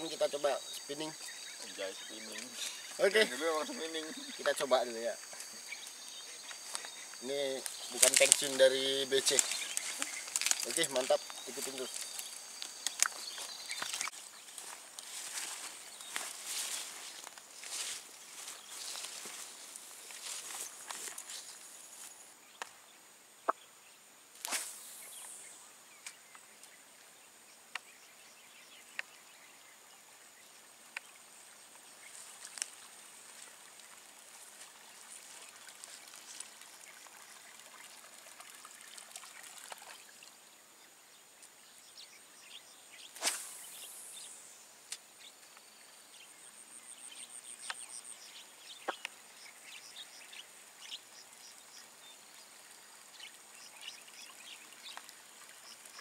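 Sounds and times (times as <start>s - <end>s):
high insect drone: 0.0s - 23.0s, 23.8s - 37.5s, 41.6s - 56.0s
faint ticks and splashes: 0.1s - 23.6s, 24.4s - 56.0s
fishing rod cast swish: 24.4s - 25.0s, 43.2s - 43.8s.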